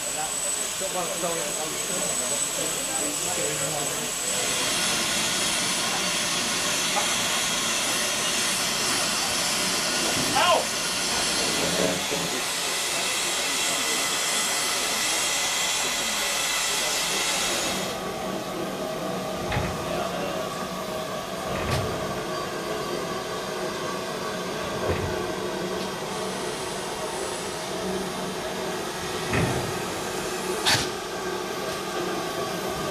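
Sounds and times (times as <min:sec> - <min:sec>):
steam locomotive hissing: 0:00.0 - 0:32.9.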